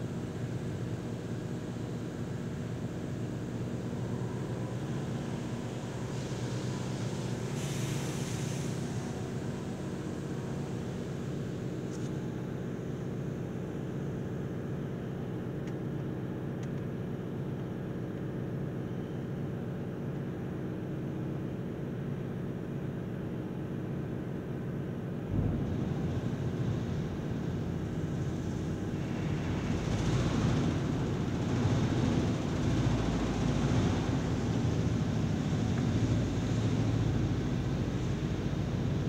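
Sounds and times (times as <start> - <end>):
car wash water spraying: 5.4 - 11.6
low hum: 25.1 - 31.6.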